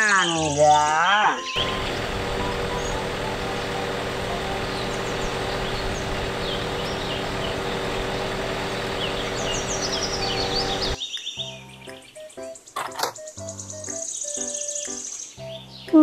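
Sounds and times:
birds chirping: 0.0s - 16.0s
engine and hydraulics humming: 1.6s - 11.0s.

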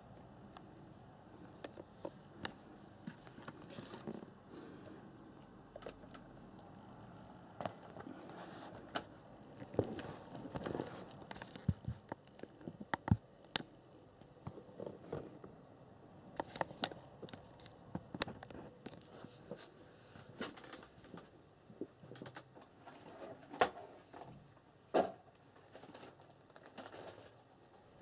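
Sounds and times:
handling clicks and rustling: 1.3s - 4.4s, 7.6s - 15.6s, 16.3s - 24.4s, 25.0s - 28.0s.

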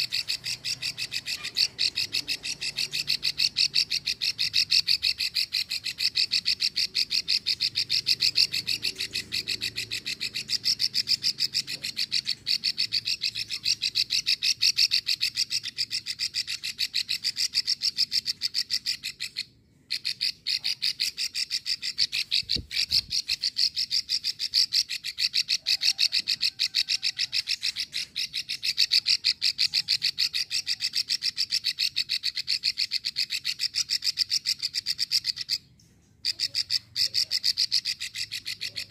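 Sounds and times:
bird call of fast clicks: 36.2s - 38.9s.

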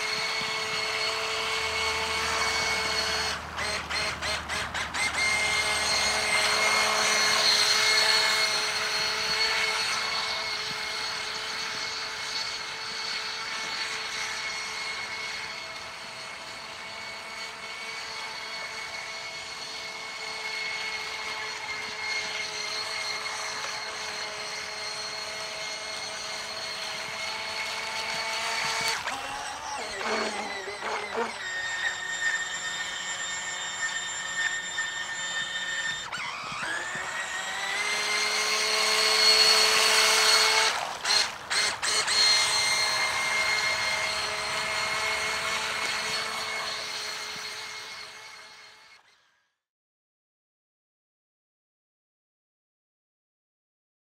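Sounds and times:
electric motor high whine: 0.0s - 49.5s.

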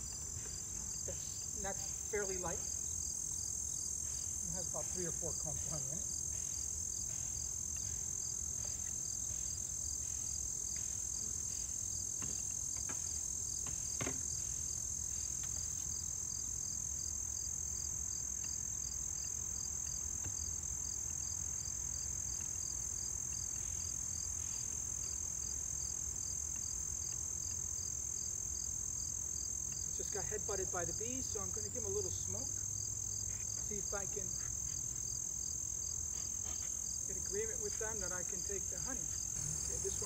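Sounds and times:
crickets chirping: 0.0s - 40.0s
knocks on wooden boxes: 13.6s - 14.3s.

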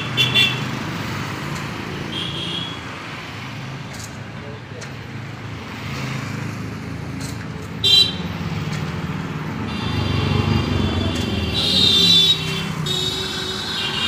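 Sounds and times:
car horns: 0.0s - 0.8s, 2.0s - 2.8s, 7.8s - 8.3s, 9.6s - 14.0s
vehicle engines rumbling: 0.0s - 14.0s.

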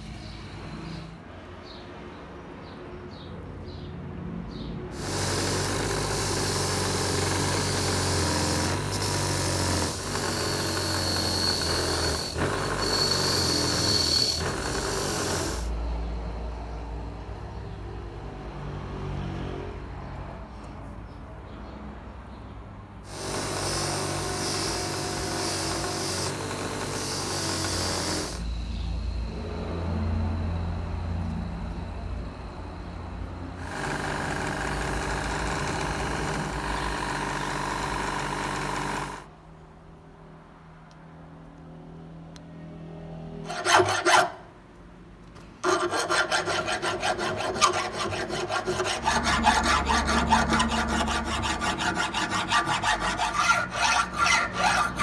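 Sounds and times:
bench grinder running: 5.0s - 15.7s, 23.1s - 28.5s, 33.6s - 39.3s, 45.6s - 55.0s
hand file rasping on steel: 43.5s - 44.4s, 45.6s - 55.0s.

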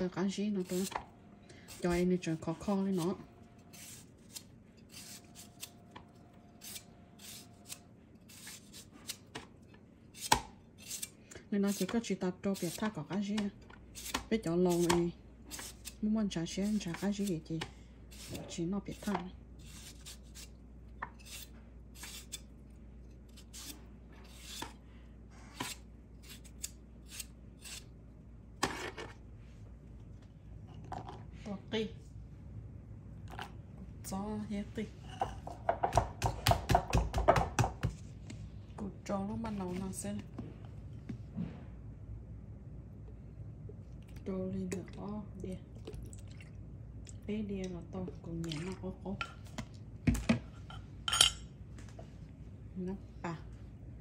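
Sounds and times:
knife slicing mango: 6.6s - 9.5s.

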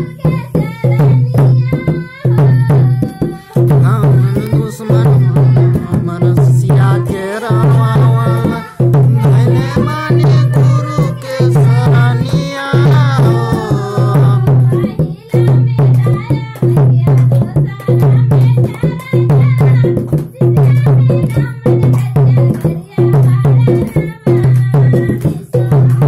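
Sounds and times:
drums and percussion: 0.0s - 26.0s
man singing: 3.6s - 14.9s.

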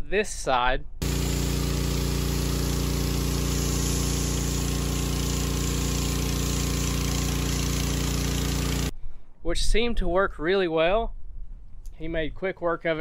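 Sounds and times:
pressure washer engine hum: 1.0s - 8.9s
water jet hissing: 1.0s - 8.9s.

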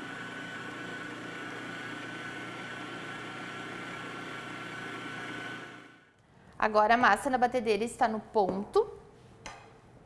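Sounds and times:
stand mixer motor whine: 0.0s - 6.1s.

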